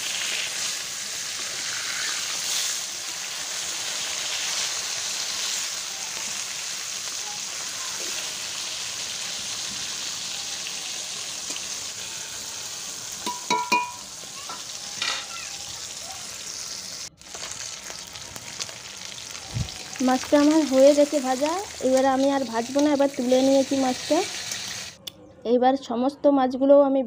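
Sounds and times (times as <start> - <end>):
fish sizzling in hot oil: 0.0 - 25.0
metal spatula clinking on pan: 13.2 - 14.0.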